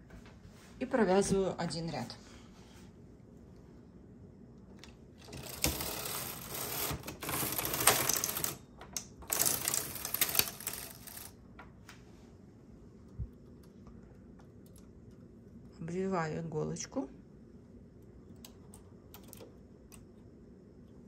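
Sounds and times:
knitting machine carriage clatter: 5.2 - 8.6, 9.2 - 11.3.

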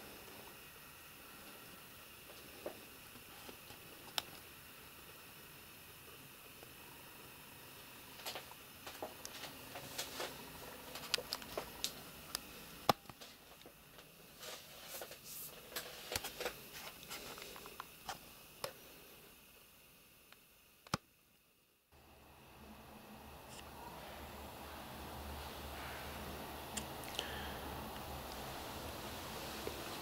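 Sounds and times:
faint hiss: 0.0 - 30.0
handling clicks and rustles: 9.2 - 18.8.

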